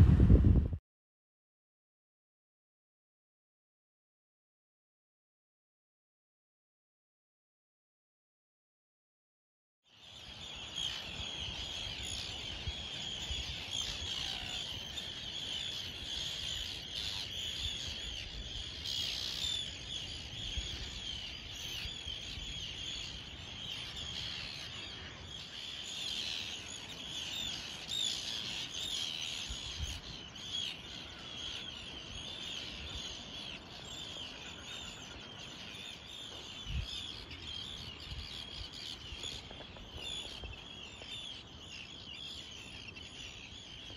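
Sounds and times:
wind buffeting microphone: 0.0 - 0.8, 34.9 - 41.4
birds chirping and twittering: 9.9 - 43.9.

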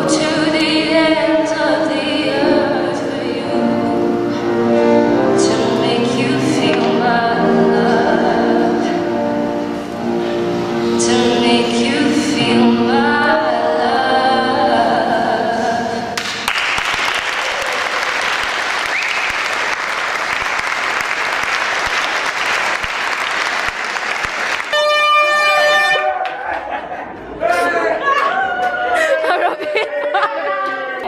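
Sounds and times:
person singing: 0.0 - 16.2
piano accompaniment: 0.0 - 16.2
audience clapping: 16.2 - 25.4, 26.2 - 26.6.

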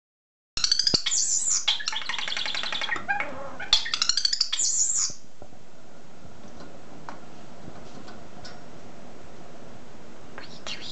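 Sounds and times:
starling singing: 0.6 - 5.2.

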